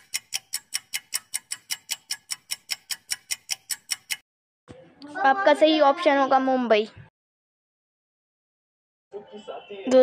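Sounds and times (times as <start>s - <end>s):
clock ticking quickly: 0.0s - 4.2s.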